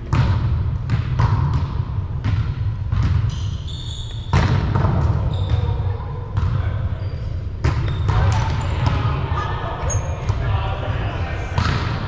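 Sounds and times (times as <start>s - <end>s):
volleyballs smacking and bouncing: 0.0s - 3.5s, 4.1s - 6.8s, 7.6s - 9.3s, 11.5s - 12.0s
sneakers squeaking: 0.0s - 10.5s.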